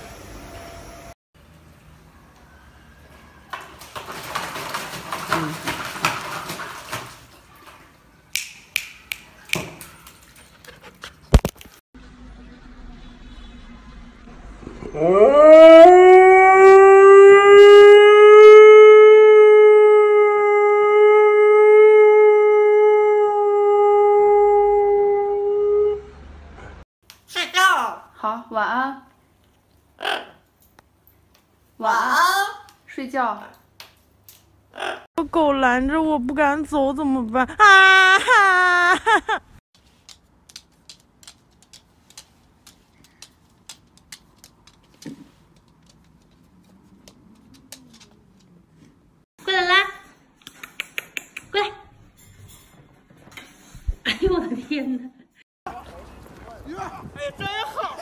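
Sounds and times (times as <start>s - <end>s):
dog howling: 14.8s - 26.1s
dog claws clicking on wooden floor: 39.9s - 48.5s.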